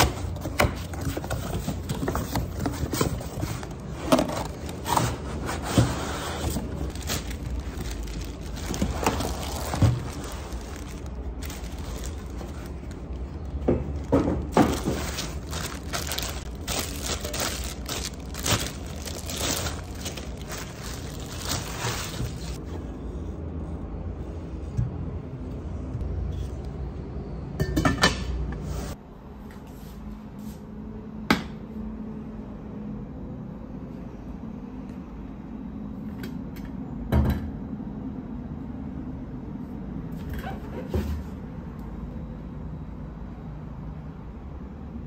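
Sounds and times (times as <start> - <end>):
plastic wrapping rustling: 0.2 - 22.6
metal pots and lids clinking: 27.6 - 28.4.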